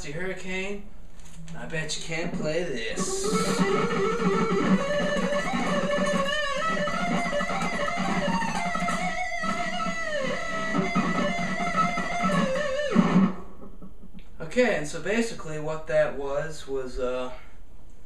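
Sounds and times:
fast electric guitar lead: 2.2s - 14.1s.

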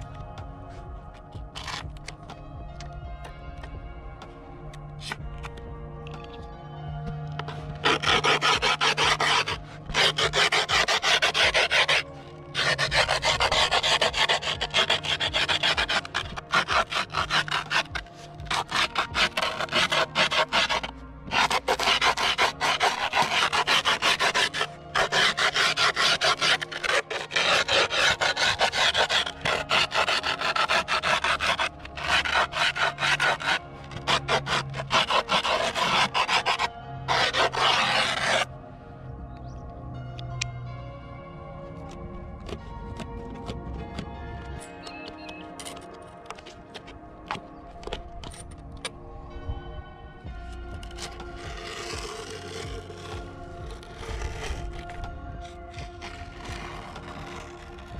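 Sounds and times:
metal tool rasping on griptape: 1.4s - 2.2s, 7.4s - 38.5s, 44.6s - 48.9s, 50.5s - 57.9s.

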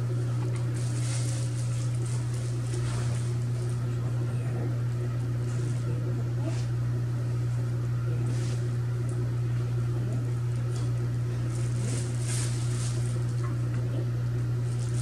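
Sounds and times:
steady low hum: 0.0s - 15.0s
plastic bag crinkling: 0.6s - 3.8s, 11.4s - 13.5s, 14.6s - 15.0s.

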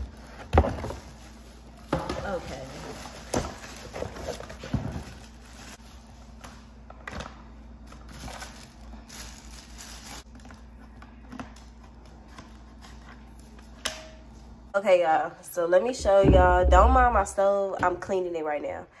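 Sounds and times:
plastic bags crinkling: 0.0s - 6.4s, 7.8s - 10.6s
low room hum: 0.0s - 19.0s.

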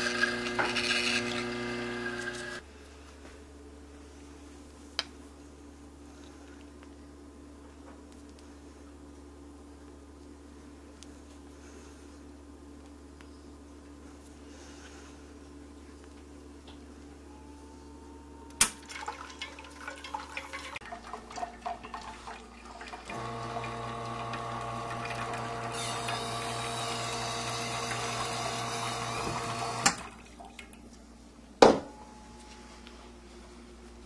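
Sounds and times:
espresso machine pump running: 0.0s - 2.6s, 23.0s - 30.1s.

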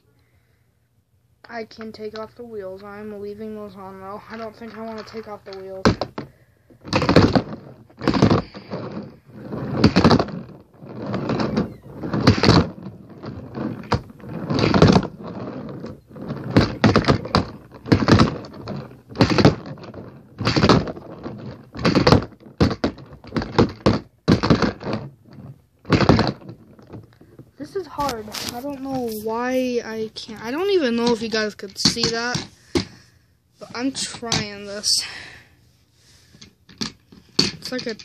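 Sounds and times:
handboard wheels clacking and rolling: 6.9s - 27.2s.

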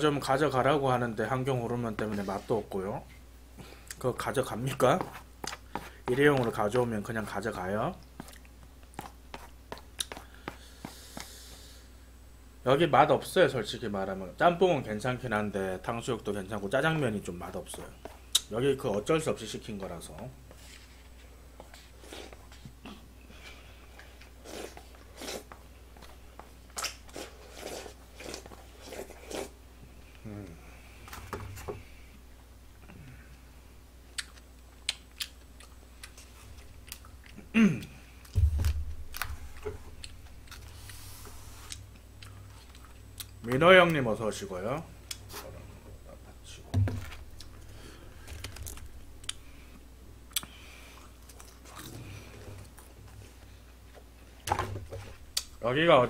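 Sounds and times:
slurping and gulping soup: 26.8s - 29.6s.

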